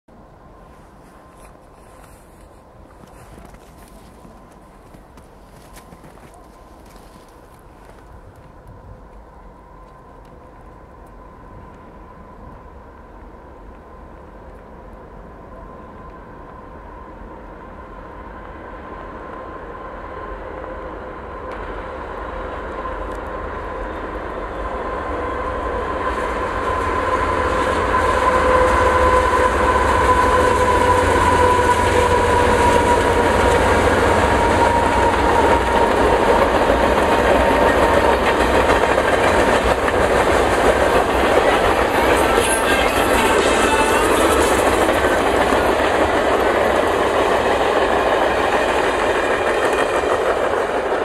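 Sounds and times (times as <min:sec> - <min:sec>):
diesel freight train passing: 0:00.1 - 0:51.0
clickety-clack of train wheels: 0:01.3 - 0:09.2, 0:25.3 - 0:51.0.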